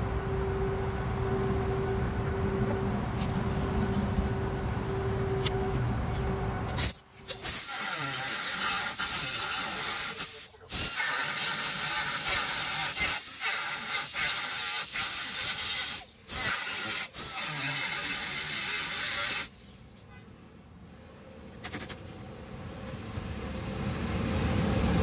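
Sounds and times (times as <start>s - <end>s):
pneumatic cut-off tool grinding metal: 6.8s - 19.8s.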